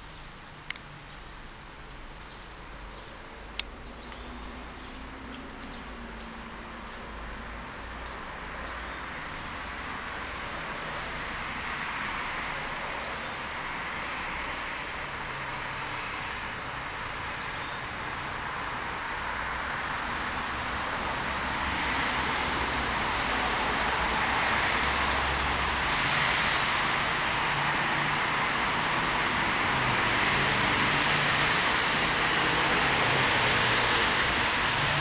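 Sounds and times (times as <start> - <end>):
brook water rushing: 3.3 - 35.0.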